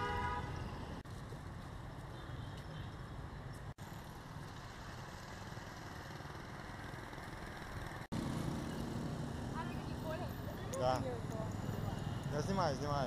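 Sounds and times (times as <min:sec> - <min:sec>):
motor vehicles running: 0:02.8 - 0:13.0
motorbikes running: 0:03.8 - 0:13.0.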